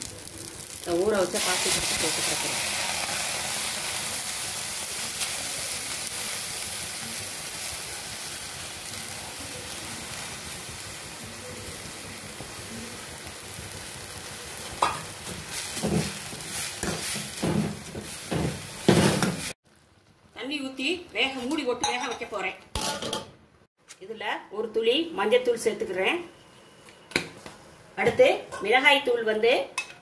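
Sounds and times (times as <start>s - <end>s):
greens sizzling in a pan: 0.0s - 22.5s.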